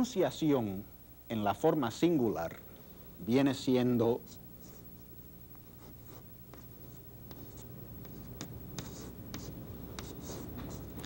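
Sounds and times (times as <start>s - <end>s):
chalk scratching on blackboard: 5.7s - 11.0s.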